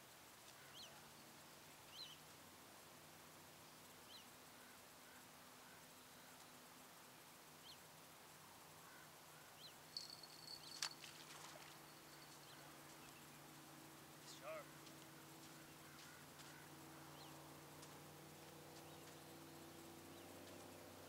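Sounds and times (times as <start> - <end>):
bird chirps: 9.6 - 11.1, 11.8 - 13.4
thin high steady tone: 9.8 - 13.3.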